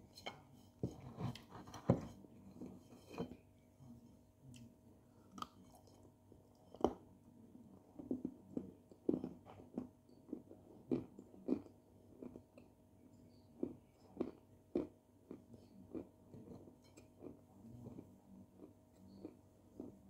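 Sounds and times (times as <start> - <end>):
dry clay crunching and chewing: 7.8 - 12.7, 13.6 - 20.0.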